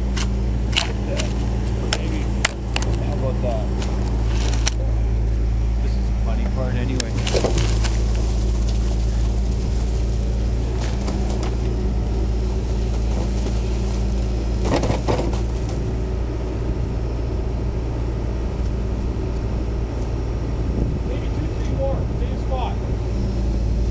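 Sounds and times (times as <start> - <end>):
diesel engine running: 0.0 - 23.9
metal knocks and clanks: 14.6 - 15.8.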